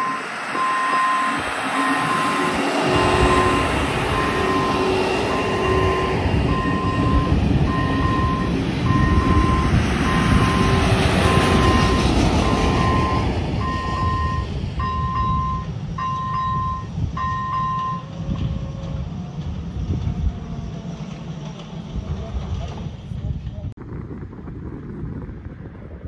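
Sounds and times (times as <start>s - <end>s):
crossing warning bell beeping: 0.0s - 18.7s.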